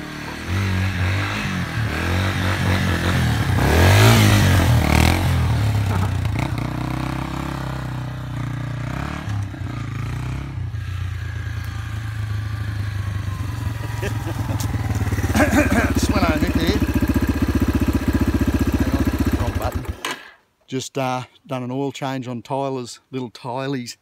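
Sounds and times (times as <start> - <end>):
dirt bike engine revving: 0.0 - 20.3.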